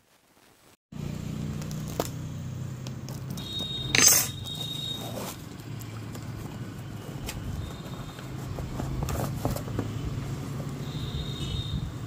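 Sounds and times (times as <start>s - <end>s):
hands handling cardboard parcel: 3.1s - 10.0s.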